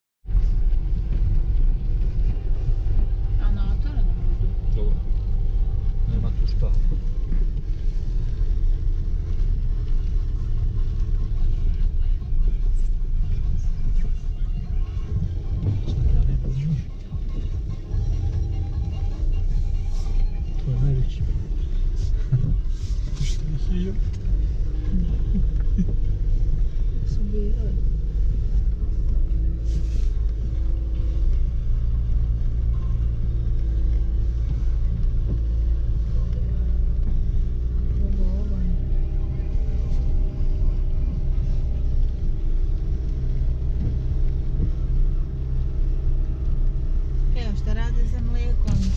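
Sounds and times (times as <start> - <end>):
car driving on unpaved track: 0.2 - 48.9.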